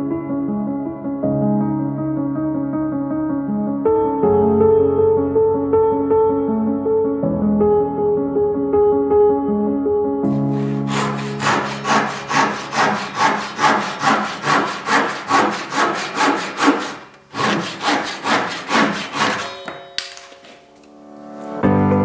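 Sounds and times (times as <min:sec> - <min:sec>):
handsaw cutting wood: 0:10.3 - 0:19.8.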